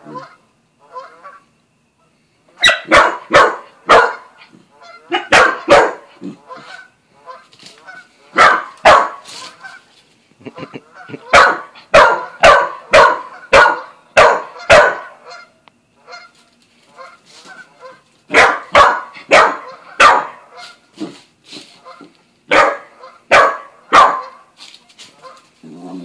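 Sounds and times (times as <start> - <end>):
dog barking: 2.6 - 4.4, 5.1 - 6.8, 8.3 - 9.3, 11.2 - 15.3, 18.3 - 20.7, 22.5 - 24.5.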